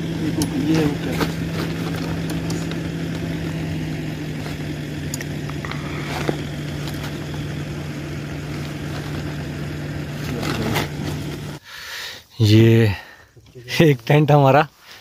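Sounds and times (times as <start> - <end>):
car engine idling: 0.0 - 11.8
tent poles and fabric rustling: 0.3 - 11.6.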